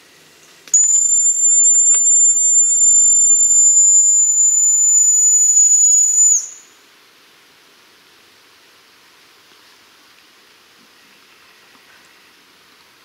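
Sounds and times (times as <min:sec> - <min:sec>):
high-pitched whistle blast: 0:00.8 - 0:06.7.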